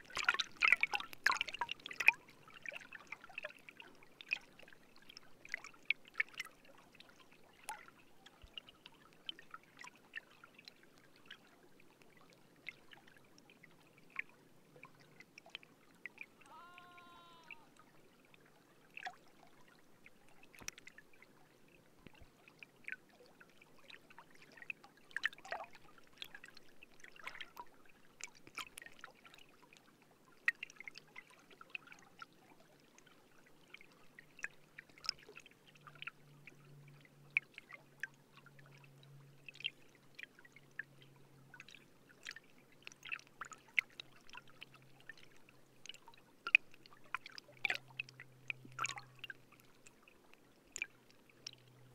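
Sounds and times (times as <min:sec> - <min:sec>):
faint low wavering hum: 0:17.6 - 0:51.9.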